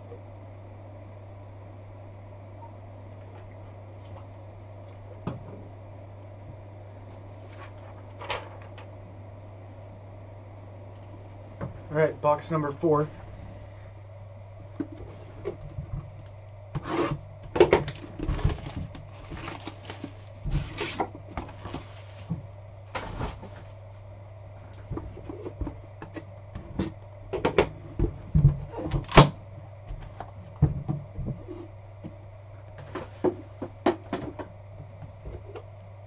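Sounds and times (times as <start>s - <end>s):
steady low hum: 0.0s - 36.0s
cardboard packaging knocks and rustling: 17.6s - 22.4s.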